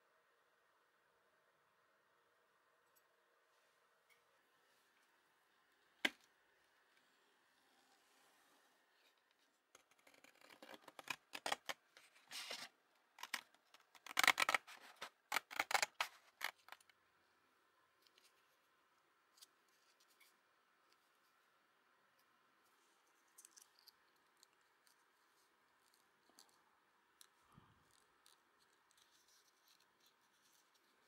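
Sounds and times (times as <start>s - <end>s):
scissors cutting paper: 13.2s - 16.8s.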